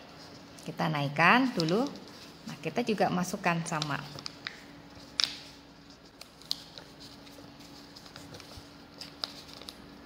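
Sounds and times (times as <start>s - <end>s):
paper crinkling and rustling: 1.4s - 2.7s, 3.7s - 10.0s.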